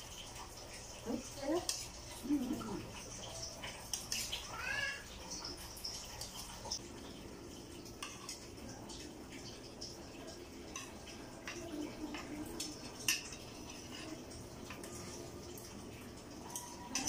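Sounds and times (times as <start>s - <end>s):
cutlery clinking on plates: 10.7s - 15.0s.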